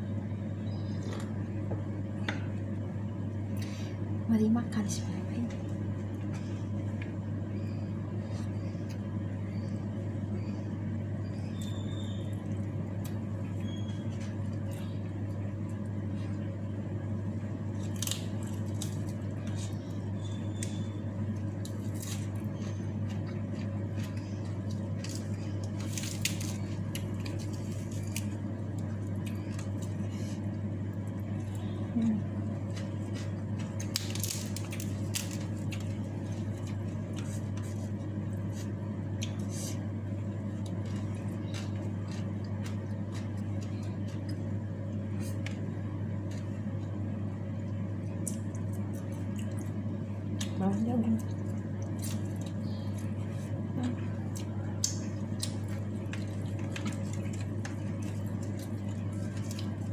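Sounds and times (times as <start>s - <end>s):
steady low hum: 0.0s - 59.9s
soft squishing of food: 0.2s - 59.9s
chewing vegetables: 17.7s - 45.6s, 48.0s - 59.9s.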